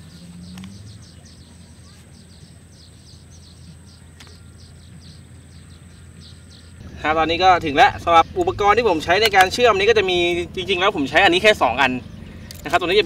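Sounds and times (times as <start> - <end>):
small birds chirping: 0.0 - 13.0
steady low hum: 0.0 - 13.0.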